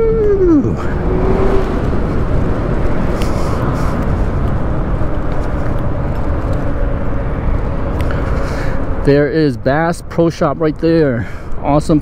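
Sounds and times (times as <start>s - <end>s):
wind buffeting microphone: 0.0s - 9.4s
wind and road noise: 0.0s - 12.0s.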